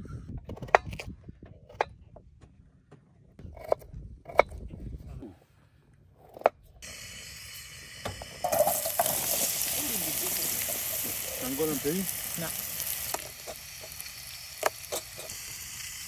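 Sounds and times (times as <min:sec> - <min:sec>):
steady hiss: 0:06.8 - 0:16.0.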